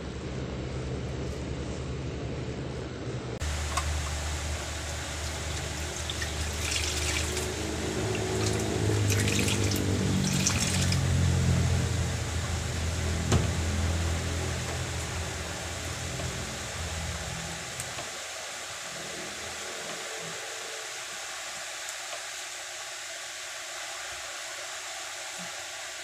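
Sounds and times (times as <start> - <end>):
electric fan humming: 0.0 - 26.0
water trickling from wrung cloth: 3.5 - 11.7.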